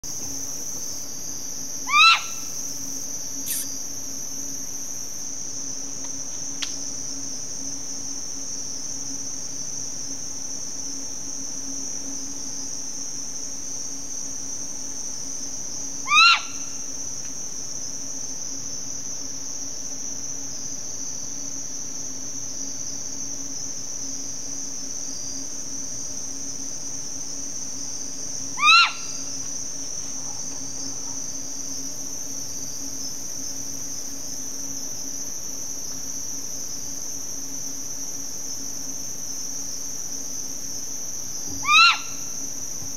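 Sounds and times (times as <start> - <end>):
crickets chirping: 0.0 - 42.9
owl calls: 1.9 - 2.5, 16.0 - 16.6, 28.6 - 29.3, 41.6 - 42.3.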